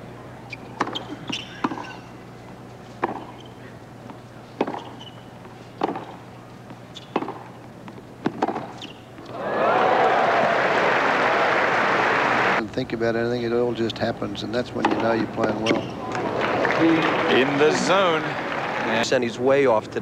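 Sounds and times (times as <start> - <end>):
racket striking tennis ball: 0.8 - 2.0, 3.0 - 3.5, 4.1 - 5.2, 5.8 - 6.2, 7.0 - 7.6, 8.2 - 9.0
ball bouncing on court: 3.0 - 3.5, 4.1 - 5.2, 5.8 - 6.2, 7.0 - 8.8
crowd applause: 9.3 - 12.6, 16.1 - 19.2.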